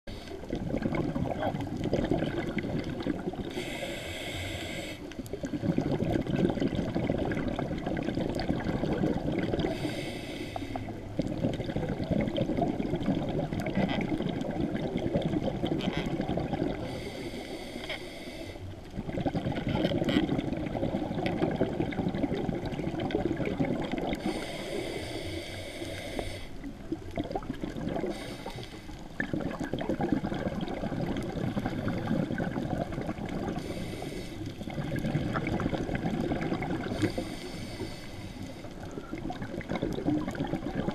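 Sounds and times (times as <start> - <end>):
regulator hissing inhale: 0.1 - 0.5, 3.5 - 5.6, 9.6 - 11.0, 16.8 - 18.8, 24.2 - 26.7, 28.1 - 29.1, 33.6 - 34.6, 36.9 - 39.0
exhaled bubbles rumbling: 0.1 - 3.8, 5.1 - 17.4, 18.7 - 25.6, 26.5 - 40.9.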